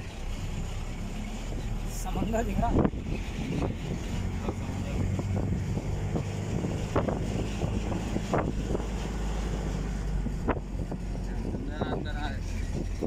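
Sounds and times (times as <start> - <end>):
wind rumble on microphone: 1.6 - 13.0.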